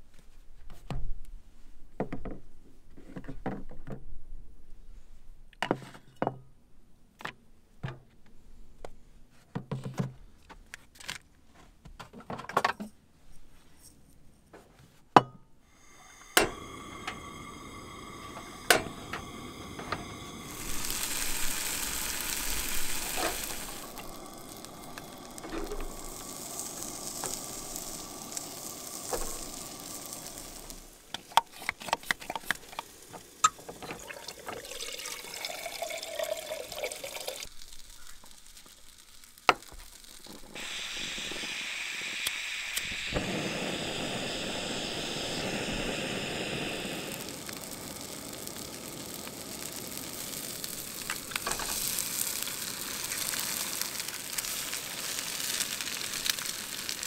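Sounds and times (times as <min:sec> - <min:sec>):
food sizzling in pans: 0:15.7 - 0:57.0
burner rushing: 0:15.9 - 0:35.2, 0:39.2 - 0:57.0.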